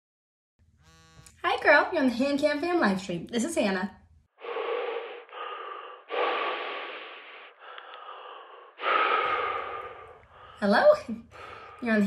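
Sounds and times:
heavy breathing over phone: 4.4s - 10.7s.

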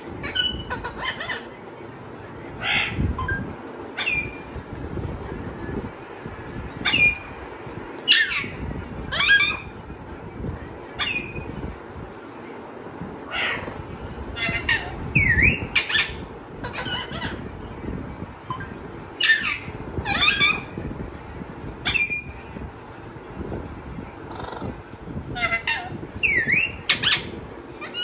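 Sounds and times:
parrot squawking: 0.2s - 1.5s, 2.6s - 3.4s, 4.0s - 4.5s, 6.8s - 7.4s, 8.1s - 9.7s, 11.0s - 11.5s, 13.3s - 13.8s, 14.4s - 17.5s, 19.2s - 20.7s, 21.8s - 22.3s, 25.3s - 28.0s.

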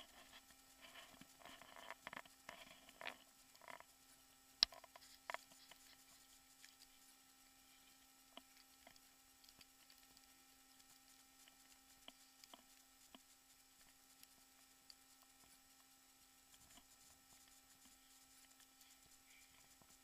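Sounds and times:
faint steady hum: 0.0s - 20.0s
soft ticks: 8.0s - 15.9s.

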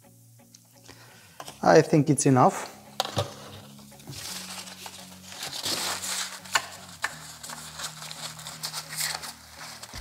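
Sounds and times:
paper towel crumpling and rustling: 3.5s - 10.0s.

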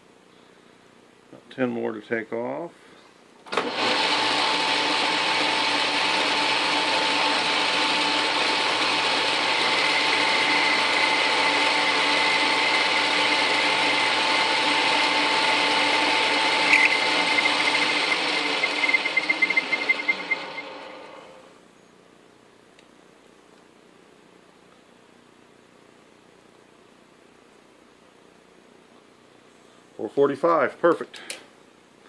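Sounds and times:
metal lathe whirring: 3.6s - 21.5s.

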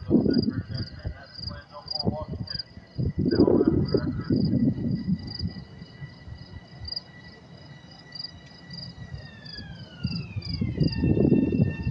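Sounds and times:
crickets chirping: 0.0s - 11.9s
faint multi-pitched whine: 0.0s - 11.9s.

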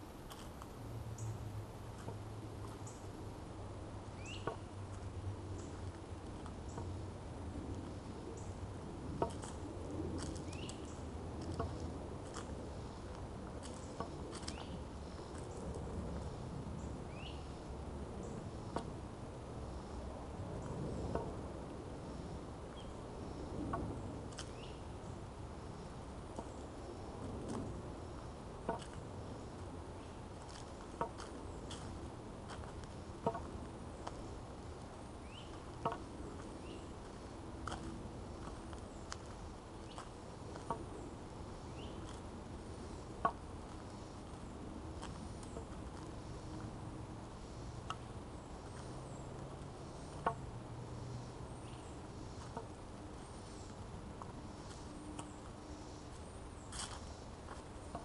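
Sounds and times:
steady low hum: 0.0s - 58.0s
steady low rumble: 0.0s - 58.0s
walking stick tapping on pavement: 2.0s - 3.0s, 4.3s - 7.0s, 9.1s - 12.6s, 13.4s - 15.5s, 28.6s - 29.0s, 30.4s - 34.2s, 35.4s - 36.8s, 37.6s - 41.0s, 47.8s - 48.1s, 50.1s - 50.4s.

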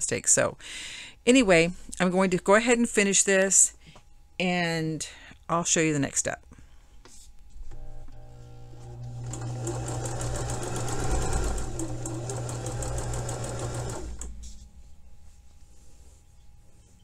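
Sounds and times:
sewing machine stitching: 8.2s - 14.4s.

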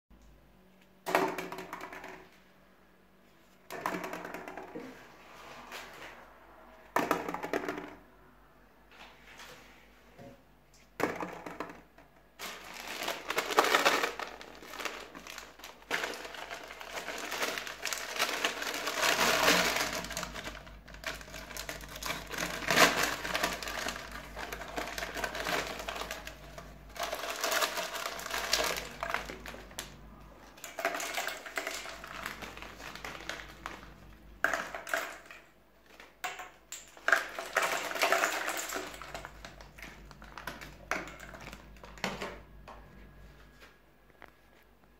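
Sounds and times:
snacks falling onto plastic balls: 1.0s - 2.4s, 3.7s - 4.9s, 11.0s - 42.6s
foil snack bag crinkling: 12.4s - 35.4s, 36.8s - 42.0s.

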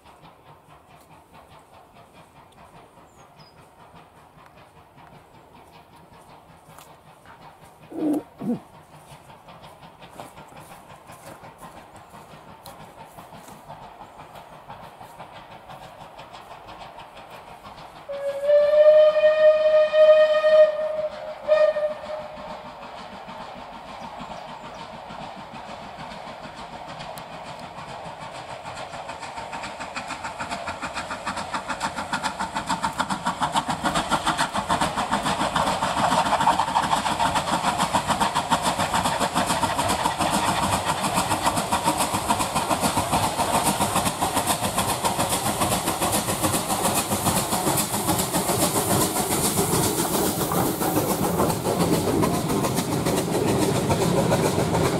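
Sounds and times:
steam locomotive exhaust beats: 0.0s - 54.9s
steam whistle: 18.1s - 22.5s.

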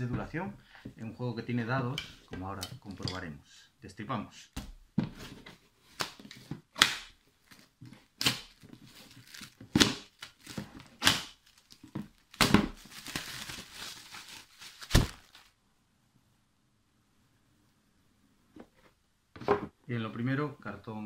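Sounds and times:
plastic shrink wrap crinkling: 7.4s - 15.6s.

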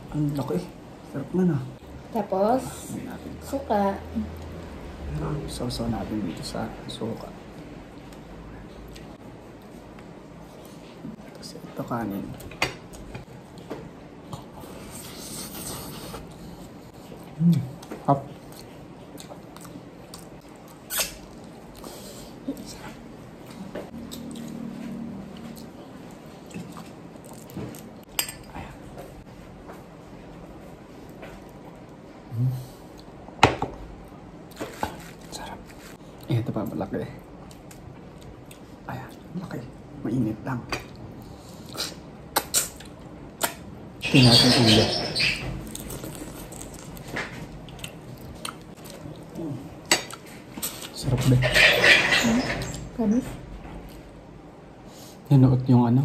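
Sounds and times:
soft eating noises: 0.0s - 56.0s
chewing and mouth noises: 14.3s - 28.6s, 45.6s - 51.0s.

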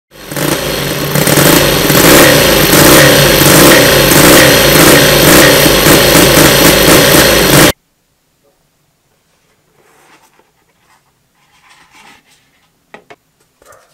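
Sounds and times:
model engine running: 0.1s - 7.8s.

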